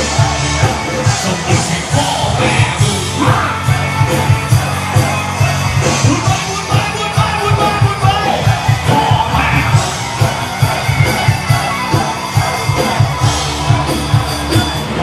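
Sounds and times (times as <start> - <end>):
crowd shouting: 0.0 - 15.0
fast bass drum beat: 0.0 - 15.0
live rock band playing: 0.0 - 15.0
person singing: 0.8 - 5.2.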